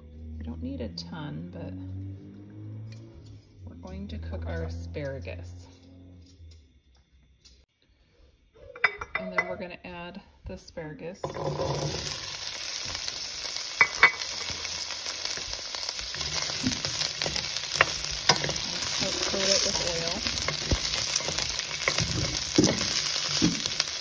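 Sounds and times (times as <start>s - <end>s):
vegetables sizzling in hot oil: 11.2s - 24.0s
wooden spoon knocking on pan: 16.4s - 23.8s.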